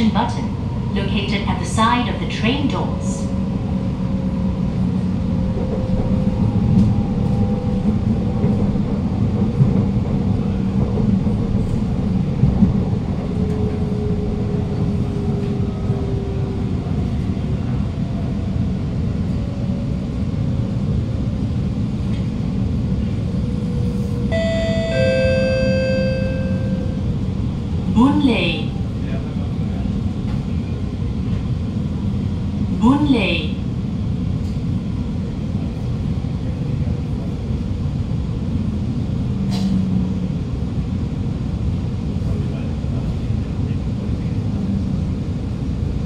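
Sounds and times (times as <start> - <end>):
metro wheels rumbling on rail: 0.0 - 46.0
electronic chime: 24.3 - 27.0.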